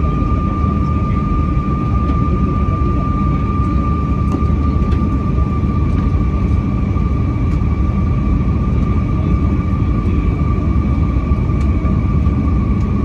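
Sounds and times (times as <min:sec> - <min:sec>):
airliner engines and airflow rush: 0:00.0 - 0:13.0.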